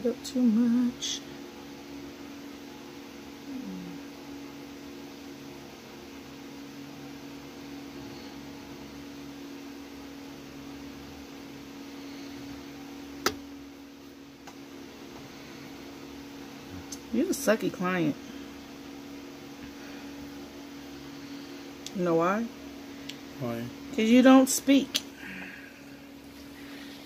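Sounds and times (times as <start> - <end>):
low hum of small motor: 0.0 - 27.0.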